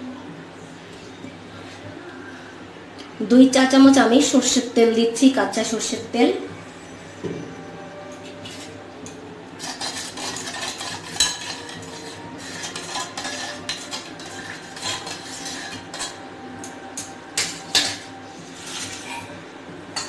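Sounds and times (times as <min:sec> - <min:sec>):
spoon scraping steel box: 0:09.6 - 0:16.2, 0:17.4 - 0:19.3
spoon clinking on steel: 0:17.0 - 0:18.1.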